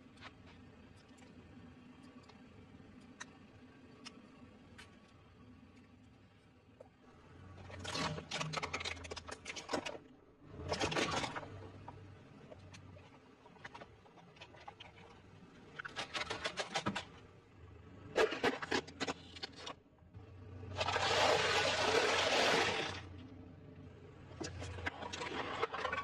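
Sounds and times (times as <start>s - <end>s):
objects cracking under car tyre: 7.6s - 17.2s, 24.4s - 26.0s.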